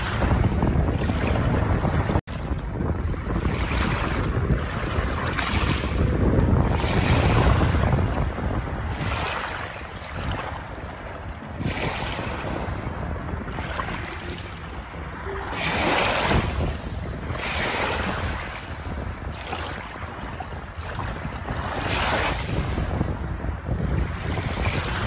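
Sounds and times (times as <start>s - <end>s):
waves washing over pebbles: 0.0s - 25.0s
wind rumble on microphone: 0.0s - 25.0s.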